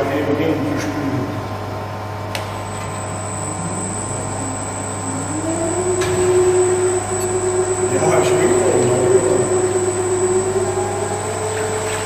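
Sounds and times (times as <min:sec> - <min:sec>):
machinery hum: 0:00.0 - 0:12.0
mid-pitched tone: 0:02.9 - 0:12.0.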